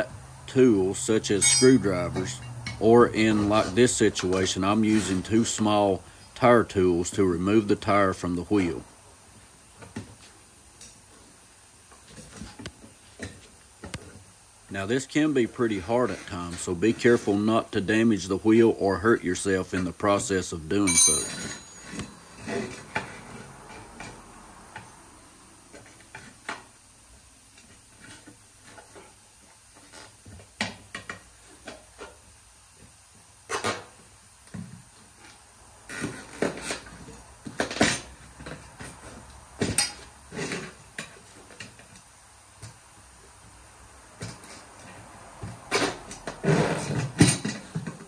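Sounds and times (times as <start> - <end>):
tire irons clinking on metal rim: 0.5 - 4.5, 20.8 - 22.8.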